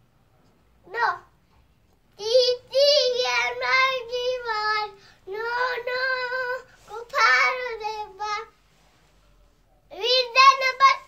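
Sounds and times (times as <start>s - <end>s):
young child singing: 0.8s - 1.4s, 2.1s - 8.6s, 9.9s - 11.0s.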